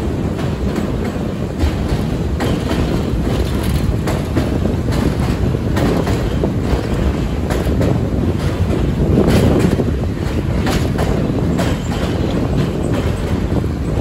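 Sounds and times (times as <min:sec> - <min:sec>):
train rumbling on track: 0:00.0 - 0:14.0
wheels clicking over rail joints: 0:00.0 - 0:14.0.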